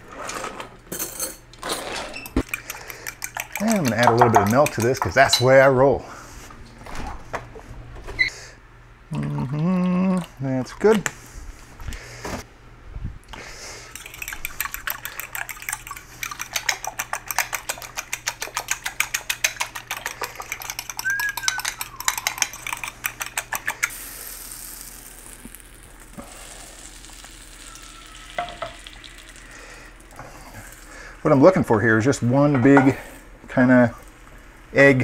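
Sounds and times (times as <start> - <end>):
utensil beating eggs in bowl: 2.4 - 5.4, 13.4 - 31.2
butter sizzling in frying pan: 23.9 - 30.0.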